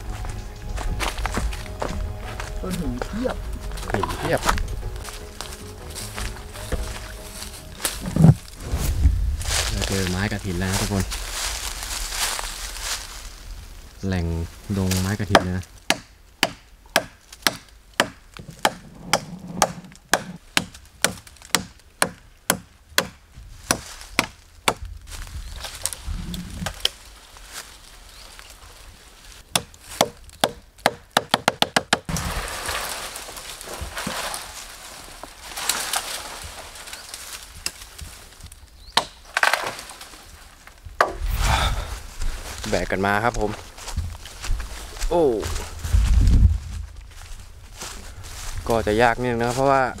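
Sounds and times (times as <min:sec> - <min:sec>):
wood splintering cracks: 0:15.1 - 0:25.0, 0:35.2 - 0:41.2
blade chopping wood: 0:15.3 - 0:24.9, 0:29.5 - 0:32.3.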